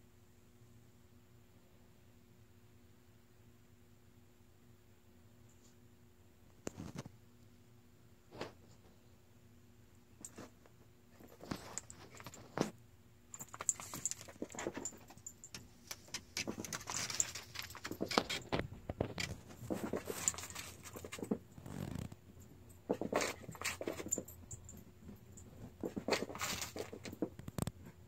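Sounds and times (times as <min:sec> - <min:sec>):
dog collar tags jingling: 0:11.2 - 0:12.6, 0:13.3 - 0:27.3.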